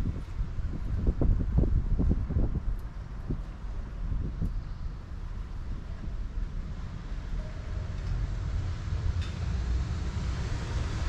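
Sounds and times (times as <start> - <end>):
wind rumbling on microphone: 0.0 - 11.0
distant traffic hiss: 3.6 - 11.0.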